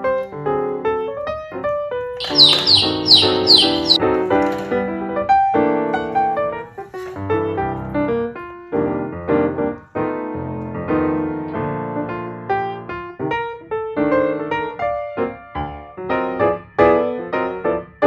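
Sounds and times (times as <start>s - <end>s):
piano music: 0.0s - 18.0s
high chirps: 2.2s - 4.0s.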